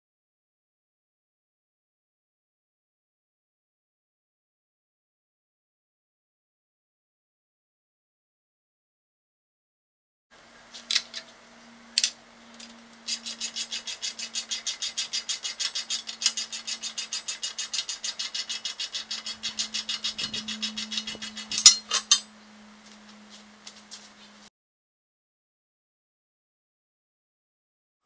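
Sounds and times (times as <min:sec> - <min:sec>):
faint steady hum: 0:10.4 - 0:24.5
metal clinks: 0:21.5 - 0:22.3.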